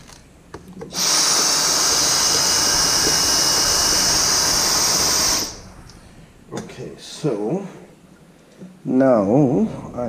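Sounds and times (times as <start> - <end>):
vacuum cleaner whining: 0.8 - 5.6.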